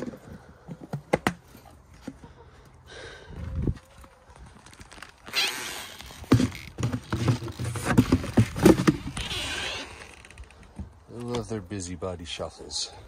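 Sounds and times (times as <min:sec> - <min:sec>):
rustling: 0:03.8 - 0:11.6
knocks and thumps on wooden boards: 0:06.2 - 0:09.1.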